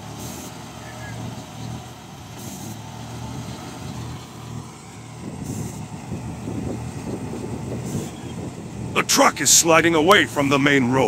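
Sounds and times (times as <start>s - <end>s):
truck engine drone: 0.0s - 11.0s.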